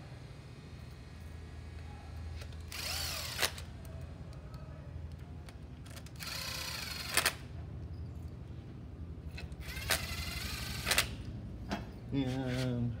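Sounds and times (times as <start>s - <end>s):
drill motor whine: 2.7s - 3.5s.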